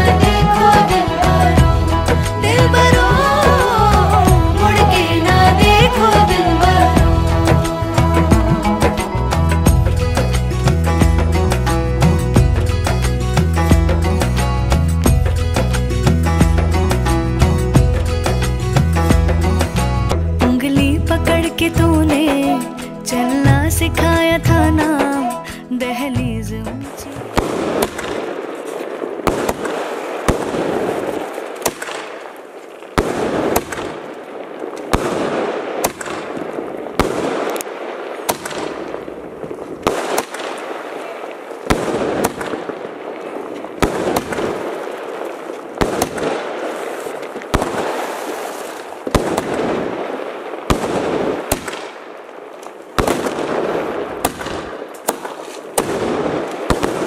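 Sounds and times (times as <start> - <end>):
fireworks crackling: 0.0 - 16.2, 26.8 - 57.0
fireworks bangs: 27.0 - 57.0.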